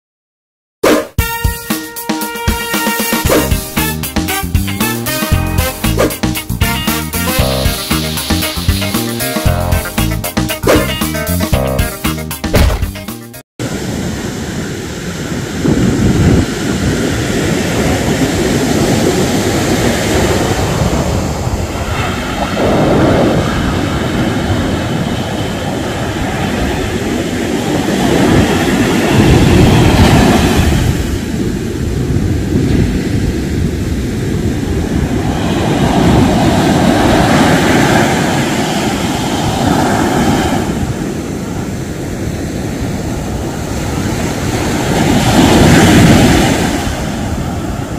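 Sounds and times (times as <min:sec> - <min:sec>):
waves breaking on a beach: 0:13.6 - 0:47.9.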